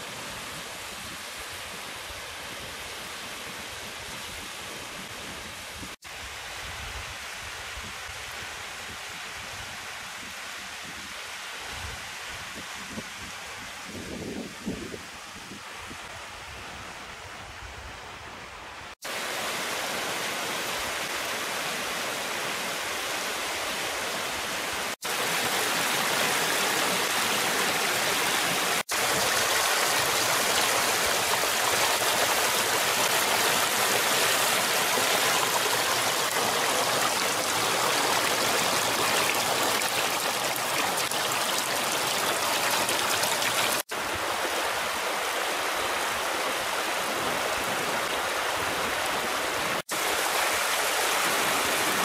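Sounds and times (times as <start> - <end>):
mountain stream running over stones: 19.0 - 52.0.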